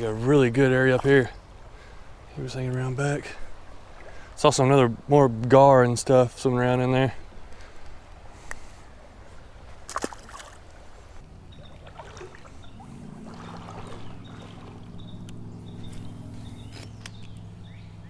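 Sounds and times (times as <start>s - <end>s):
steady motor hum: 11.2s - 18.0s.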